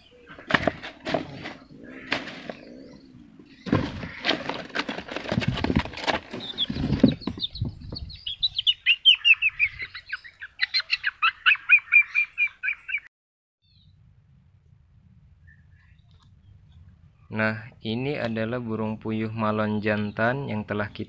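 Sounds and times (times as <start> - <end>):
bird chirping: 0.0 - 4.9, 6.3 - 14.0
bird flapping in a tub: 0.5 - 2.6, 3.7 - 7.0.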